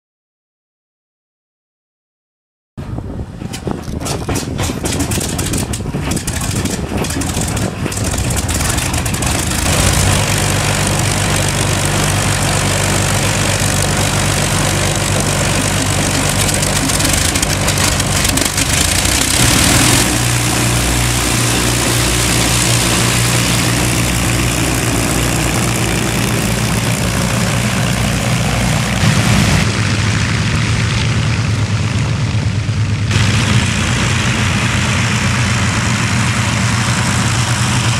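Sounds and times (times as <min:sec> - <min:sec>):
piston aircraft engines running: 0:02.8 - 0:37.9.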